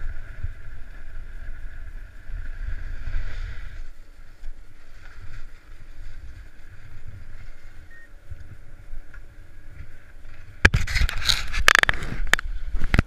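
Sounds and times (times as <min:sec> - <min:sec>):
wind buffeting microphone: 0:00.0 - 0:13.0
skis sliding over snow: 0:02.4 - 0:07.8.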